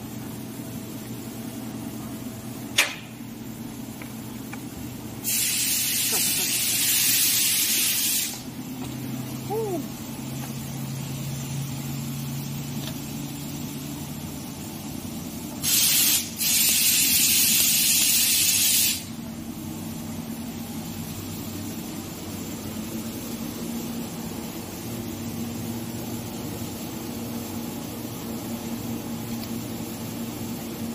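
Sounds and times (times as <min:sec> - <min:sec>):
low machinery hum: 0:00.0 - 0:15.6, 0:19.1 - 0:30.9
pressurised gas hissing: 0:05.2 - 0:08.5, 0:15.6 - 0:19.2.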